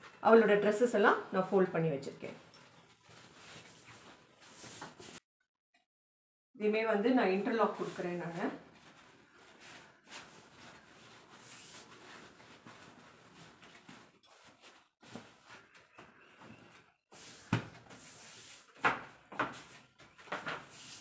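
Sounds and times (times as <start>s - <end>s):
cloth rustling: 2.5s - 5.2s, 7.6s - 18.7s.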